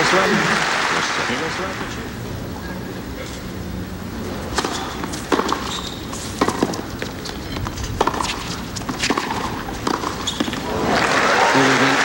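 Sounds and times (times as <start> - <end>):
racquets striking tennis ball: 4.2 - 11.6
ball bouncing on hard court: 4.5 - 10.8.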